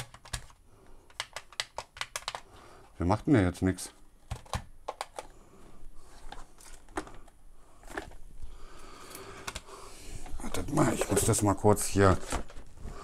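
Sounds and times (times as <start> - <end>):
plastic toy clicks and knocks: 0.0 - 2.4, 4.2 - 5.3.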